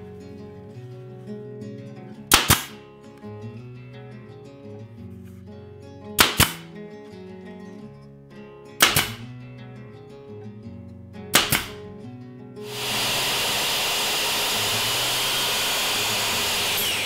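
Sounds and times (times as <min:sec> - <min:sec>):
acoustic guitar music: 0:00.0 - 0:12.7
pin nailer cracks: 0:02.3 - 0:02.8, 0:06.2 - 0:06.7, 0:08.8 - 0:09.3, 0:11.4 - 0:11.9, 0:12.7 - 0:17.0.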